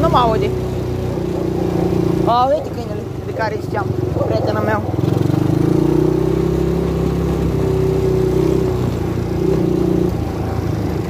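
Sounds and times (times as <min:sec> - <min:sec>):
atv engine under throttle: 0:00.0 - 0:11.0.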